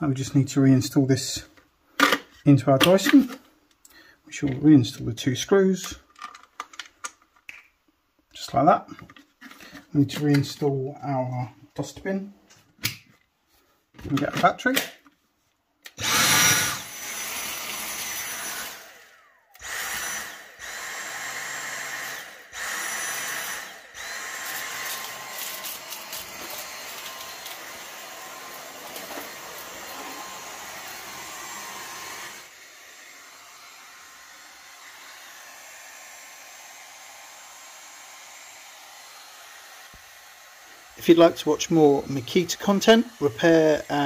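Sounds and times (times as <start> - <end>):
vacuum motor whining: 16.0 - 41.0.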